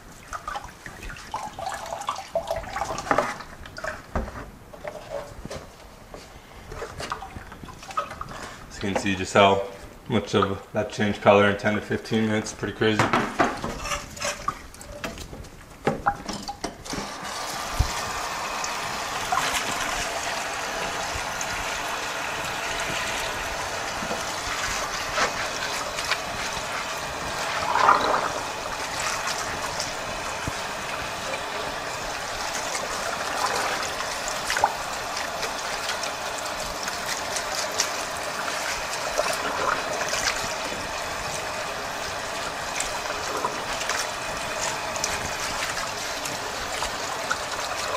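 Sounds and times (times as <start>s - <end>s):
water splashing from a hose: 0.0s - 4.0s, 16.8s - 47.9s.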